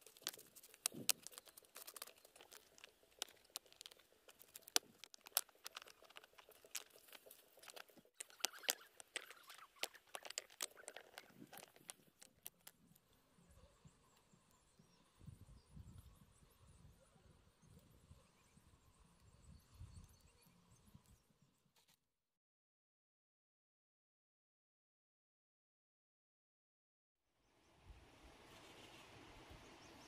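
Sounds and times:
gritty scrapes: 0.0s - 12.7s
stones clicking together: 0.0s - 13.0s.

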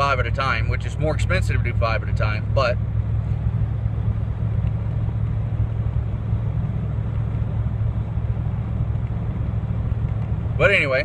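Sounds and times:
road noise inside cabin: 0.0s - 11.0s
vehicle engine drone: 0.0s - 11.0s.

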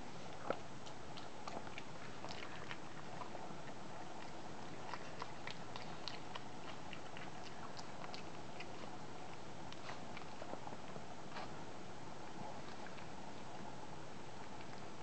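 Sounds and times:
puppies crunching treats: 0.3s - 11.6s.

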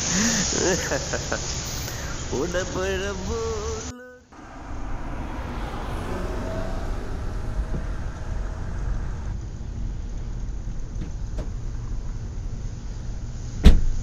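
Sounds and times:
car engine idling: 0.0s - 13.8s
traffic noise: 0.0s - 14.0s
car door opening clicks: 11.0s - 11.6s, 13.6s - 14.0s.

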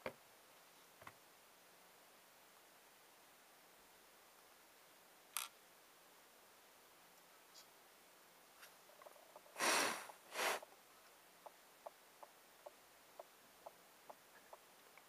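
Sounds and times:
short scraping rustles: 9.5s - 10.6s.

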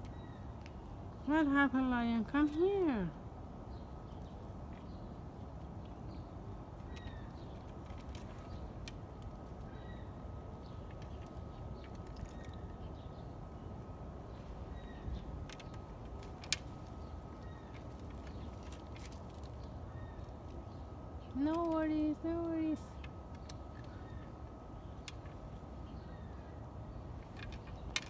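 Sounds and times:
low outdoor background noise: 0.0s - 28.0s
faint bird chirps: 6.0s - 7.6s, 9.6s - 13.3s, 14.3s - 15.8s.

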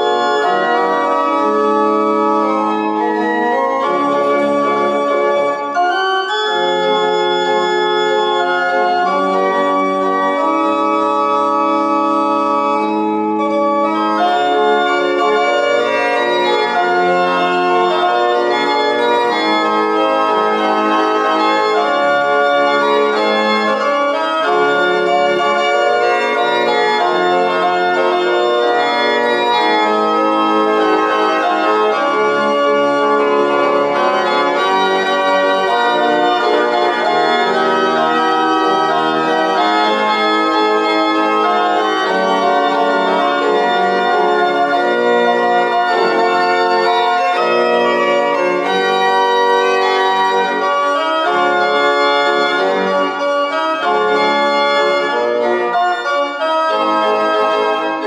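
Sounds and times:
organ playing hymn chords: 0.0s - 58.0s.

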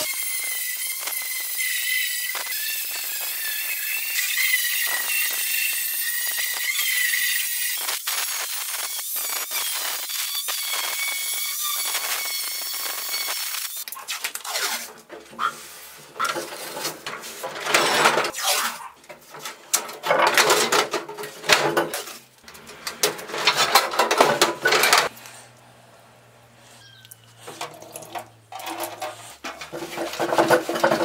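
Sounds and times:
angle grinder whining: 0.0s - 18.4s
metal toolbox clanks and rattles: 19.1s - 25.1s, 27.6s - 31.0s.

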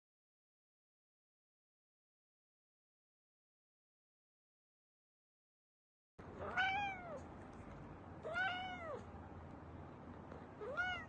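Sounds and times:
cat meowing: 6.4s - 7.3s, 8.2s - 9.1s, 10.6s - 11.0s.

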